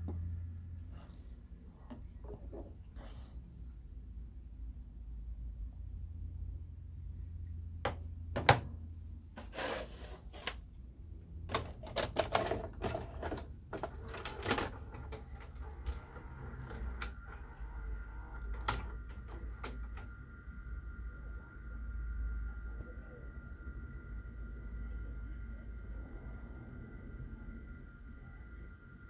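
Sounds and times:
tape mechanism whine: 0:11.6 - 0:29.0.

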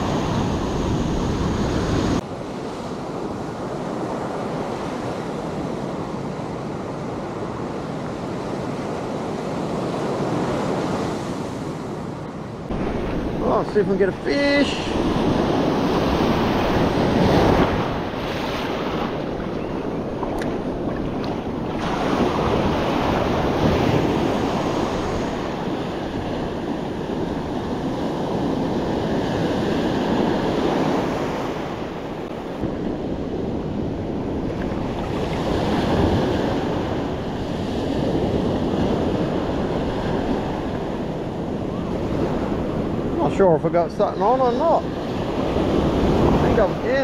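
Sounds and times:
wind buffeting the microphone: 0:00.0 - 0:02.2, 0:12.6 - 0:47.0
ocean surf breaking: 0:00.0 - 0:47.0.

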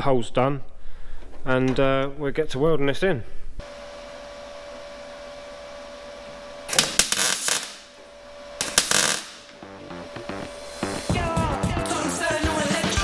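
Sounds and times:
faint steady hum: 0:03.1 - 0:11.1
crackling welder bursts: 0:03.6 - 0:11.1.

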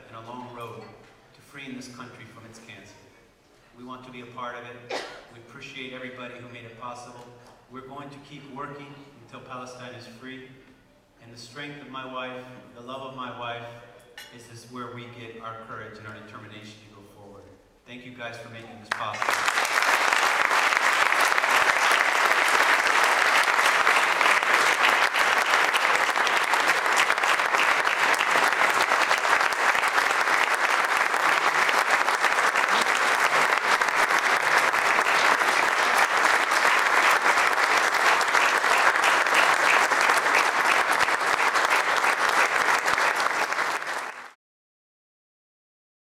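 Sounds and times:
audience applauding: 0:18.9 - 0:44.4.

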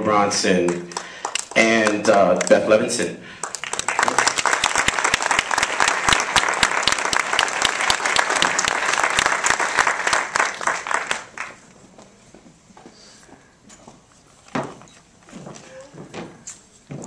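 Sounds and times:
audience applauding: 0:00.7 - 0:11.7.

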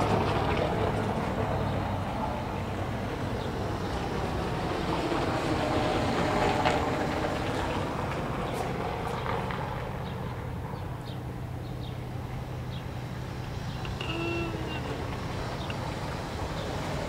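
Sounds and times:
wind and water noise: 0:00.0 - 0:17.0
ship engine humming: 0:10.4 - 0:17.0.

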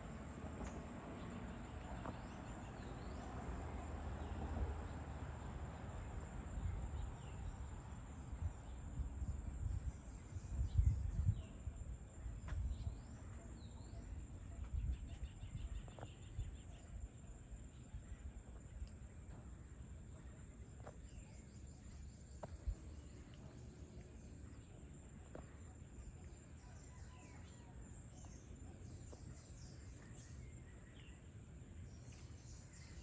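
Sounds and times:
birds chirping: 0:09.8 - 0:33.0.

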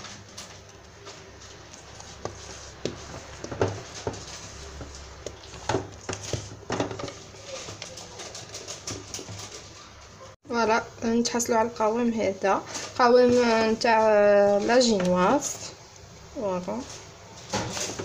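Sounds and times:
spatula scraping bowl: 0:01.6 - 0:09.7.

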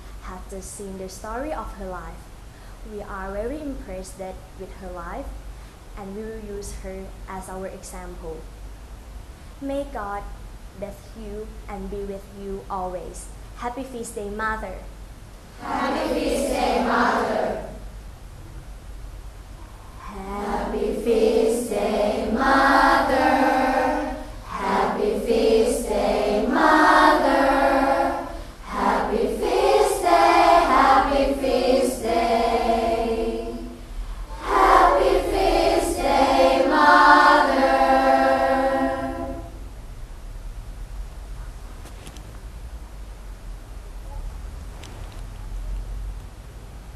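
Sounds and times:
choir singing: 0:15.6 - 0:17.8, 0:20.0 - 0:39.6.

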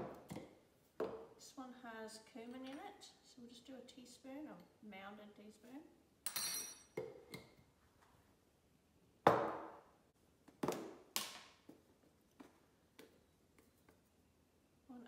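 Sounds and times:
ringing clink: 0:06.3 - 0:06.9.

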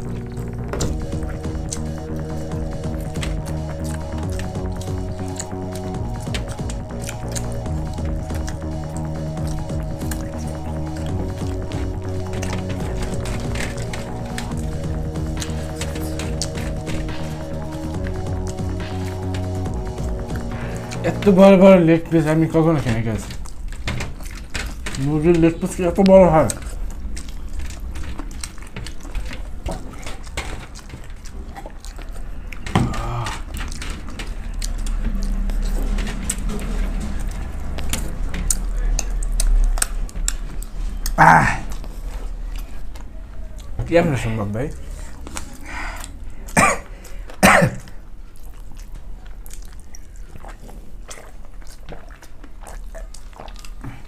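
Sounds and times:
chewing and lip smacking: 0:00.0 - 0:54.0
person exhaling: 0:32.7 - 0:33.6, 0:45.0 - 0:47.3
person coughing: 0:46.5 - 0:48.0.

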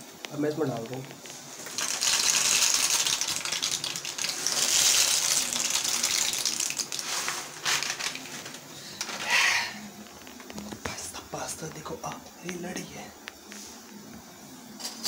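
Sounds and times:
plastic packet crinkling: 0:01.6 - 0:09.1
dry pasta rattling into a pan: 0:01.6 - 0:09.4.

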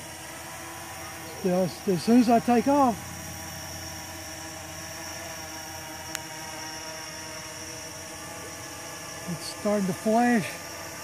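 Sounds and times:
quadcopter motors humming: 0:00.0 - 0:11.0.

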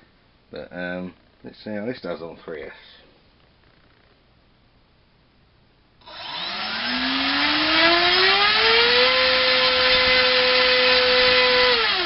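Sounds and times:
electric motor propeller whine: 0:06.0 - 0:12.0.

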